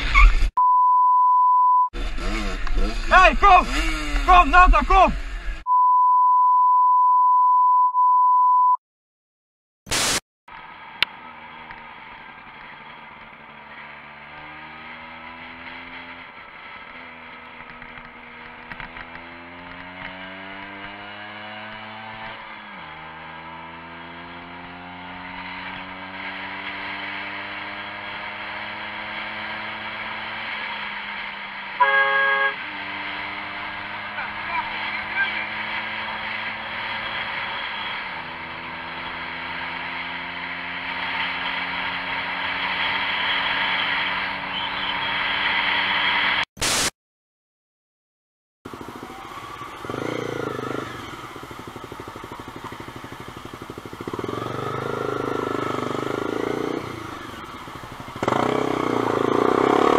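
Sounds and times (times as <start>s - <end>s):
censor bleep: 0.6s - 1.9s, 5.7s - 8.8s
motorcycle engine accelerating: 2.0s - 5.7s, 10.5s - 46.5s, 48.7s - 59.9s
vehicle horn: 31.8s - 32.8s.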